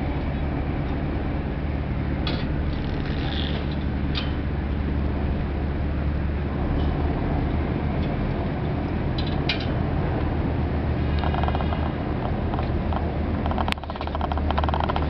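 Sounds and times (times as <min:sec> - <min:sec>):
boat engine droning: 0:00.0 - 0:15.0
rapid mechanical rattling: 0:11.0 - 0:15.0.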